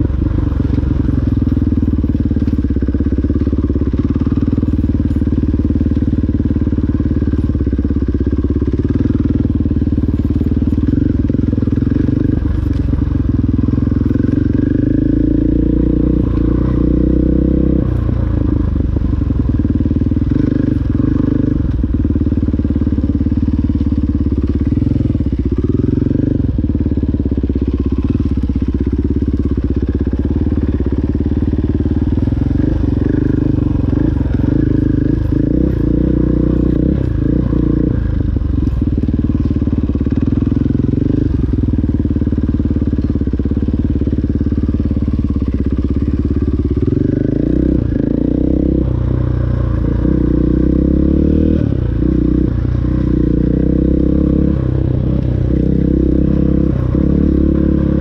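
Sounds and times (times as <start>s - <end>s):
dirt bike engine revving: 29.4s - 38.8s, 44.0s - 58.0s.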